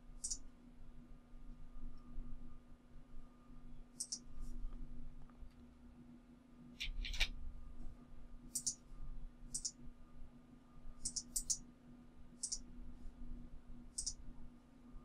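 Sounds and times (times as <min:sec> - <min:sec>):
faint steady hum: 0:00.0 - 0:15.0
mouse and keyboard clicks: 0:04.0 - 0:04.3, 0:06.8 - 0:07.3, 0:08.5 - 0:08.8, 0:09.6 - 0:09.8, 0:11.0 - 0:11.6, 0:12.4 - 0:12.6, 0:14.0 - 0:14.2.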